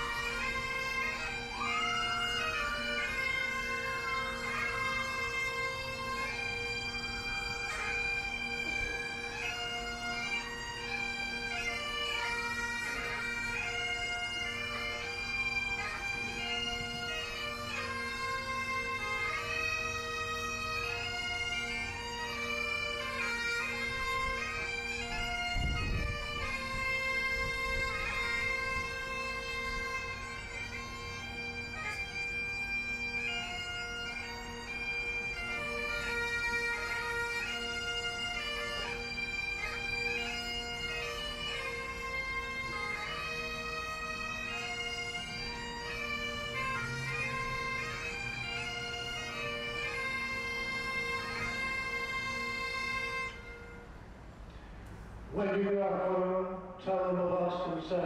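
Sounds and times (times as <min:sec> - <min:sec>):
bagpipes playing slow melody: 0:00.0 - 0:57.1.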